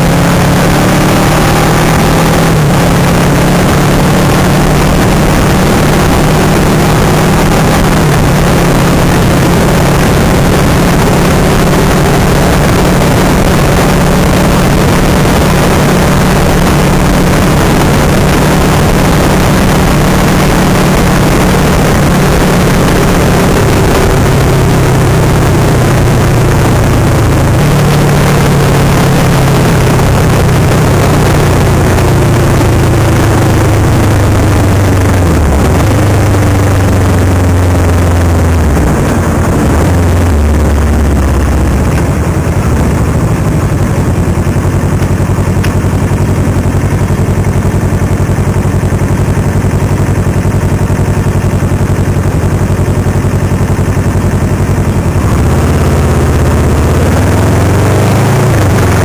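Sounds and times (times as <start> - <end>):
wind rush on microphone: 0.0 - 45.3
motorcycle engine running: 0.0 - 59.0.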